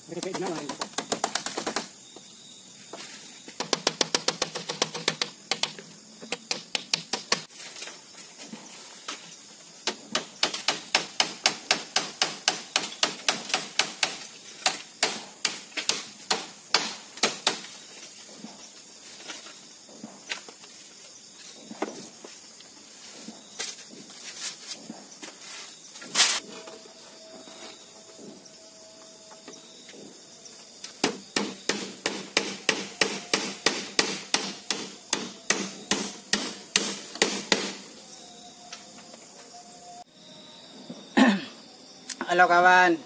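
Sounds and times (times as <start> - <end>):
hammer tapping on bamboo wall: 3.6 - 7.5, 9.8 - 17.6, 31.0 - 37.8.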